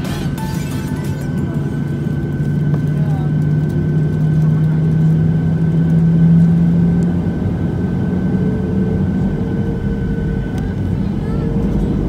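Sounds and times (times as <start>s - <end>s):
jet engines droning with whine: 0.0s - 12.0s.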